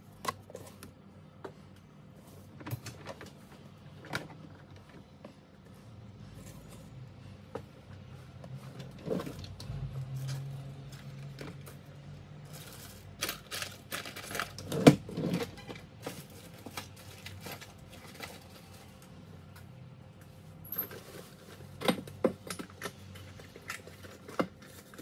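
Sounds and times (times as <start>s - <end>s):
small objects clicking and clattering: 12.5s - 18.8s.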